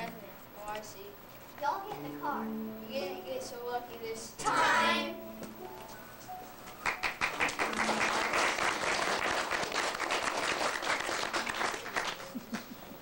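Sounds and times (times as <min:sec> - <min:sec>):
audience applauding: 0:06.8 - 0:12.9.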